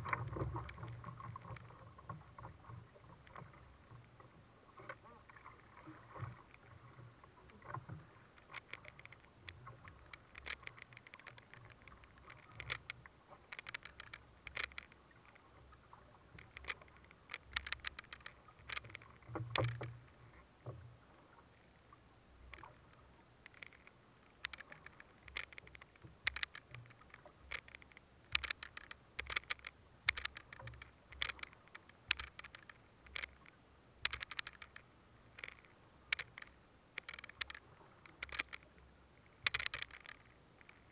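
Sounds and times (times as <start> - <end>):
waves slapping against hull: 0.0 - 40.9.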